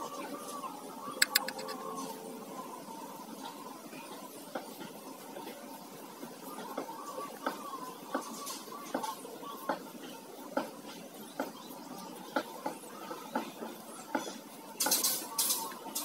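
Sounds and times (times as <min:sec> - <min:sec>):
brush tapping against can: 0:01.2 - 0:01.8.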